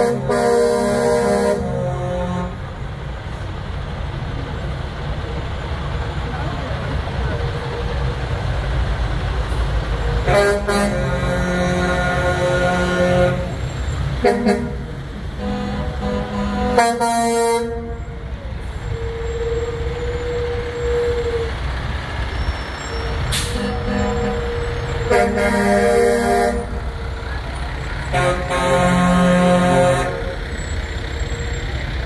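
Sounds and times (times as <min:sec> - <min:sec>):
vehicle horns blasting: 0:00.0 - 0:02.8, 0:10.2 - 0:21.5, 0:22.9 - 0:27.1, 0:28.0 - 0:30.4
truck engine rumble: 0:00.0 - 0:32.0.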